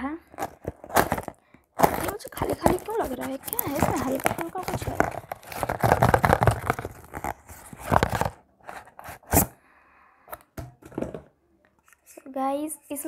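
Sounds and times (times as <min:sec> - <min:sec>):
handling noises: 0:00.2 - 0:09.5
cardboard box tearing: 0:00.4 - 0:09.5.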